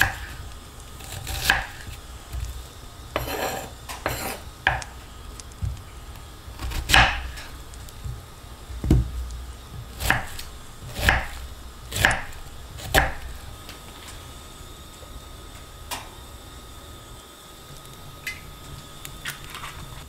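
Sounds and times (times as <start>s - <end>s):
knife chopping on cutting board: 0.0s - 0.4s, 1.0s - 2.4s, 3.2s - 4.9s, 6.6s - 7.5s, 8.8s - 9.2s, 9.8s - 13.4s.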